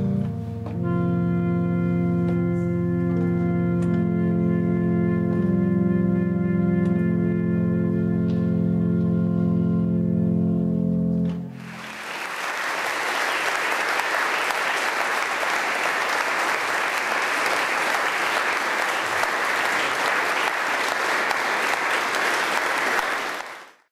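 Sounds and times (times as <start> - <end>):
held music chord: 0.0 - 11.9
applause: 11.5 - 23.9.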